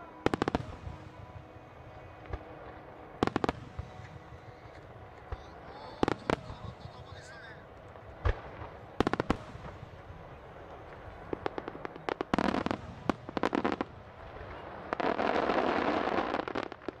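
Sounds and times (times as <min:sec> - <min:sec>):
dense firework crackling: 0:00.0 - 0:17.0
firework cracks and bangs: 0:03.2 - 0:04.3, 0:05.2 - 0:06.9, 0:08.2 - 0:10.1, 0:10.8 - 0:17.0.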